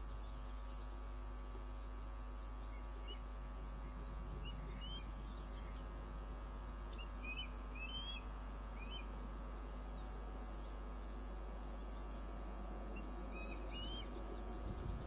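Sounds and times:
low electrical hum: 0.0s - 15.0s
osprey chirping: 7.0s - 9.2s, 13.0s - 14.3s.

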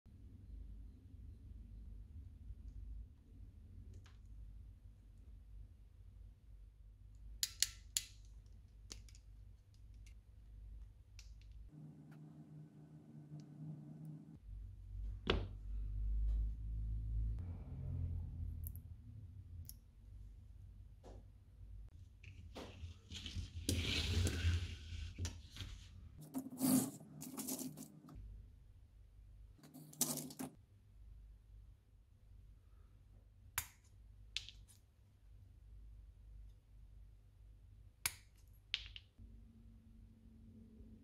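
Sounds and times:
low hum: 11.7s - 19.5s
plastic box and metal parts rubbing: 25.7s - 28.2s, 29.6s - 30.6s.

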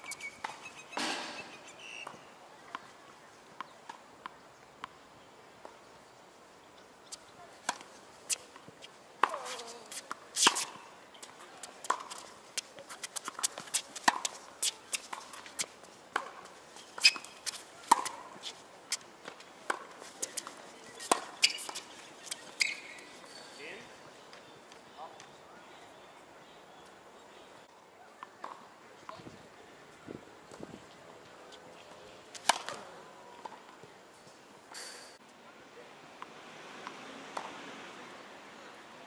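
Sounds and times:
tennis ball hit and bouncing: 0.4s - 2.2s, 7.6s - 10.8s, 11.6s - 16.4s, 17.0s - 23.0s, 28.4s - 29.2s, 32.4s - 33.6s.

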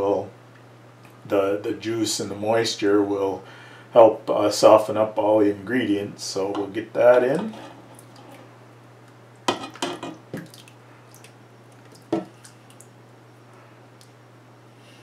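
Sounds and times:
tomatoes plopping into pot: 9.4s - 12.6s.

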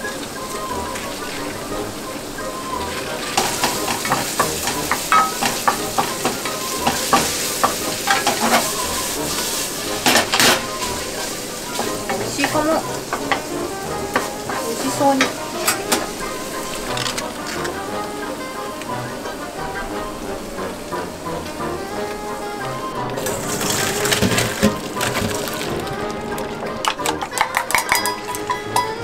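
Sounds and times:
mince sizzling in a frying pan: 0.0s - 29.0s
spatula scraping a pan: 3.1s - 17.7s, 23.2s - 25.8s.

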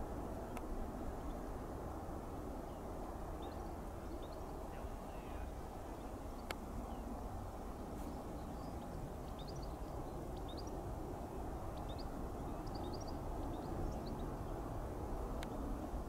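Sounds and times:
small birds chirping: 2.7s - 7.2s, 8.0s - 10.8s, 11.6s - 14.7s.

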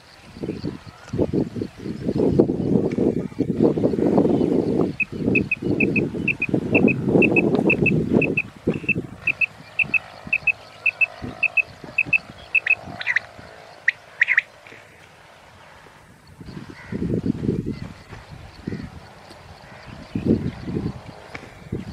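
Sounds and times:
quail calling: 5.0s - 14.5s.

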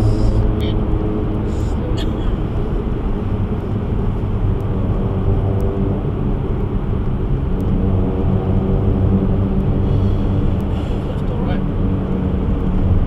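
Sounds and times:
tyre and road rumble: 0.0s - 5.4s
low engine hum: 0.0s - 13.0s.

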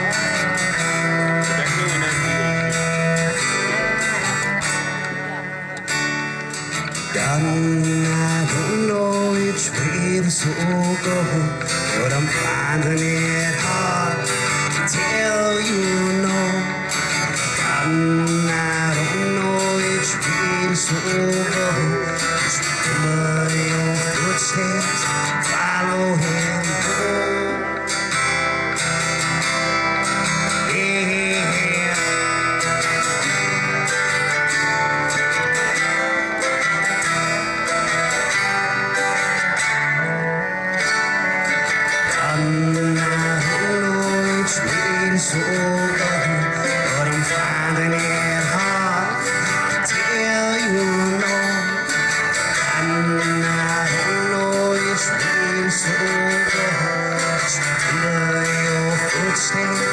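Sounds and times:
cello: 0.0s - 7.2s
harmonica: 0.0s - 59.9s
mandolin: 0.0s - 59.9s
strummed acoustic guitar: 0.0s - 59.9s.

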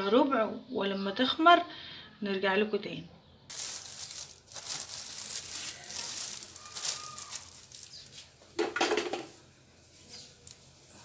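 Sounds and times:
cling film crinkling: 3.5s - 8.5s, 9.8s - 11.0s.

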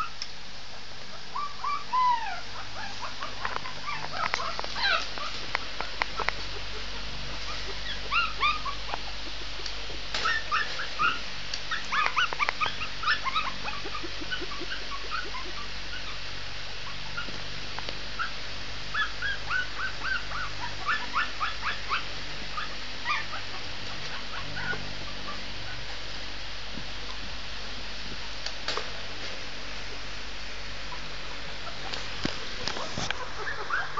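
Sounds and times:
puppy whimpering and yipping: 1.3s - 5.4s, 7.4s - 9.0s, 10.2s - 16.2s, 18.2s - 25.8s, 32.8s - 33.9s.

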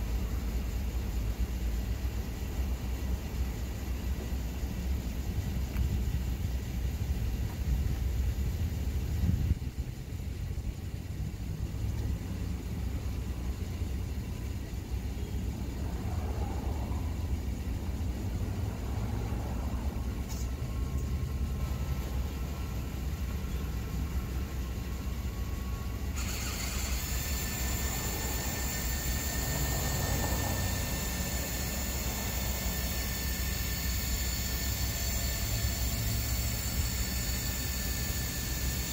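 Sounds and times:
steady low rumble: 0.0s - 26.2s
faint motor whine of awning: 2.0s - 38.9s.

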